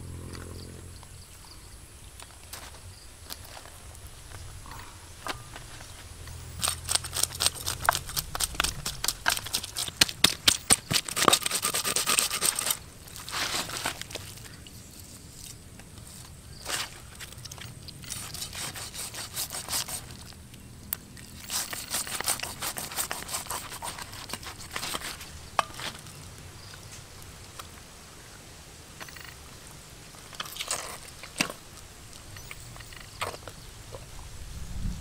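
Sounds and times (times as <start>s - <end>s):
knife scraping fish scales: 6.6s - 14.4s, 18.0s - 20.3s, 21.2s - 25.8s.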